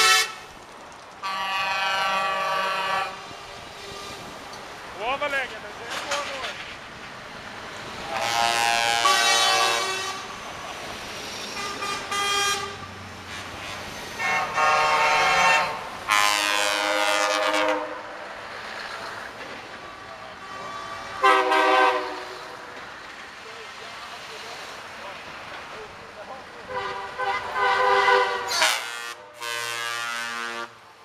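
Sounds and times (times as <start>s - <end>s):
truck air horns: 0.0s - 0.5s, 1.2s - 4.3s, 8.1s - 10.3s, 11.5s - 18.1s, 20.4s - 22.7s, 26.7s - 30.8s.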